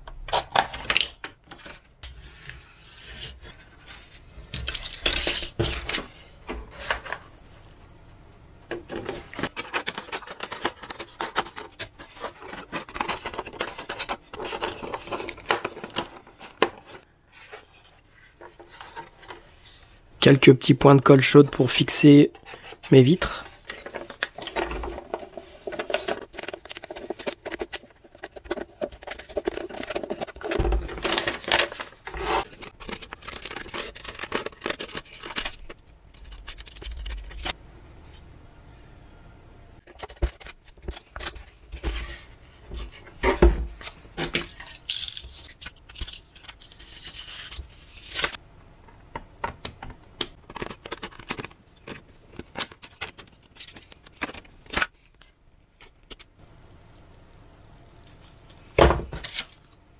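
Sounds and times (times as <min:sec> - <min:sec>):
paper rustling and scraping: 0:00.3 - 0:07.3, 0:08.8 - 0:19.9, 0:21.3 - 0:37.6, 0:39.8 - 0:48.4.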